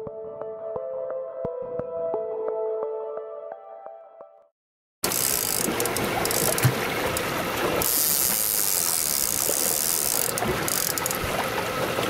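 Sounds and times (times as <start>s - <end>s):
boat engine drone: 5.0s - 12.0s
water at sea: 5.0s - 12.0s
wind: 5.0s - 12.0s.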